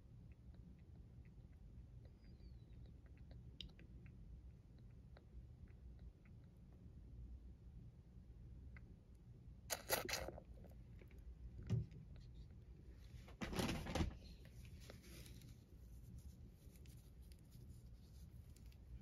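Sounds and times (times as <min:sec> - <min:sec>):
low steady hum: 0:00.0 - 0:19.0
handling rustle: 0:13.5 - 0:19.0.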